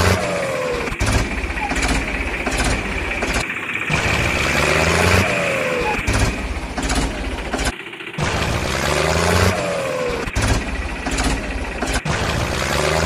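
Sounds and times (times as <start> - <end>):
tractor engine drone with whine: 0.0 - 13.0.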